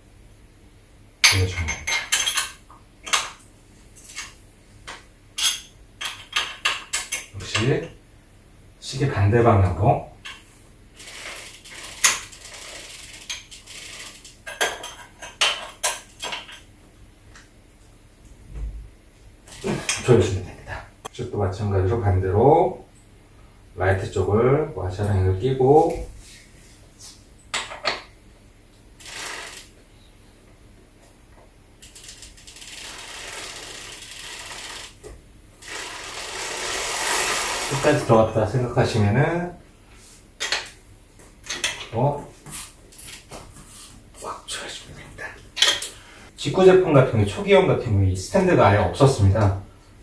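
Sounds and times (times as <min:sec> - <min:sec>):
spanner clinking and scraping metal: 0:11.0 - 0:16.6, 0:29.0 - 0:29.7
metal-on-metal rubbing: 0:35.6 - 0:38.2.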